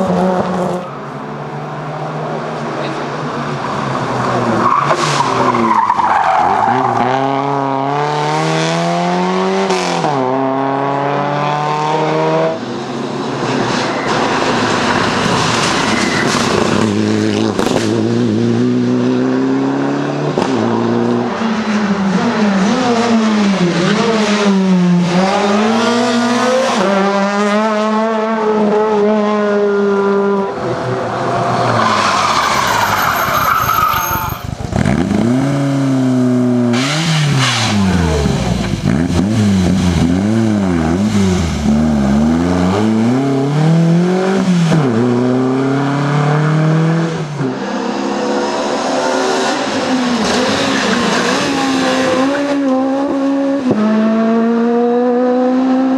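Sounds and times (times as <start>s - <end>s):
rally car engine revving: 0.0s - 55.9s
tyres squealing: 31.7s - 34.4s
second car engine revving: 34.6s - 55.9s.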